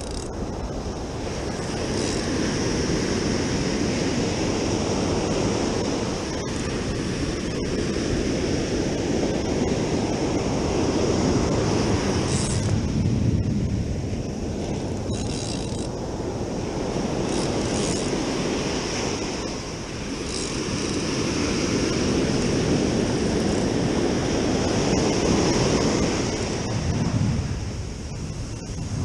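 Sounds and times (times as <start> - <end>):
ocean surf breaking on beach: 0.0 - 29.0
wind buffeting microphone: 0.0 - 29.0.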